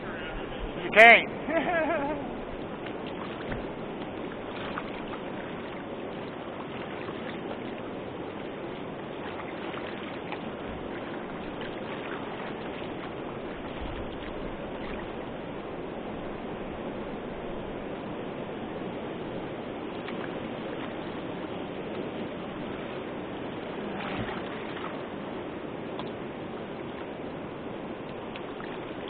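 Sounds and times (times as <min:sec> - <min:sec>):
river current rushing: 0:00.0 - 0:29.0.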